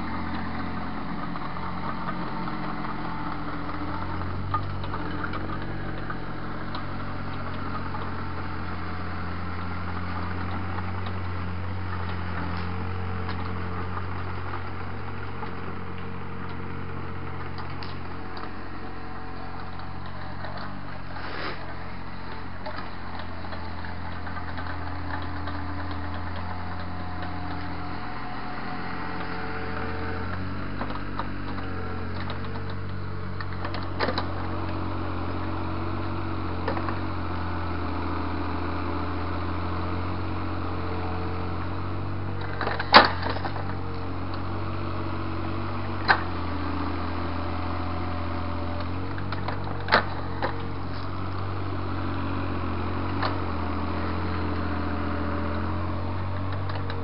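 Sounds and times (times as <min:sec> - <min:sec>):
excavator diesel engine running: 0:00.0 - 0:57.0
sharp knocks of excavator: 0:42.4 - 0:43.8.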